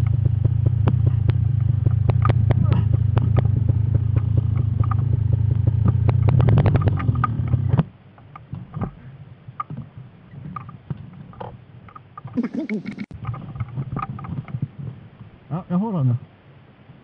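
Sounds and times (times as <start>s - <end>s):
two-stroke engine running: 0.0s - 7.8s.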